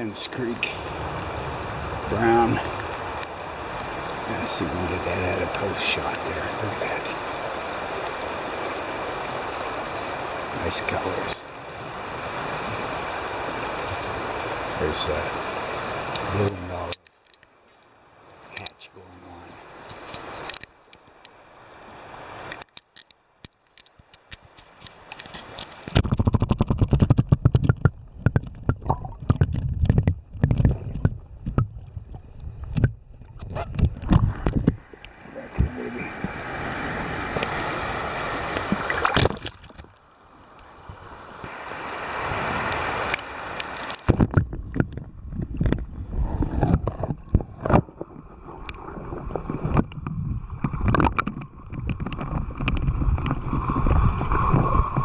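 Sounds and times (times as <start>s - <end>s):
creek water splashing and gurgling: 0.0s - 55.0s
sharp clicks and knocks: 22.5s - 31.8s
muffled underwater rushing: 25.9s - 39.8s, 41.5s - 55.0s.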